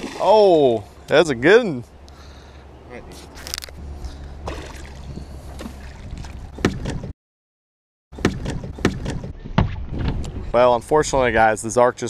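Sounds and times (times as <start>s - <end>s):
water lapping around boat: 0.0s - 1.1s, 3.2s - 7.1s
wind: 0.0s - 7.2s, 8.1s - 12.0s
fish splashing at surface: 4.4s - 5.0s
knocks on boat: 6.6s - 7.1s.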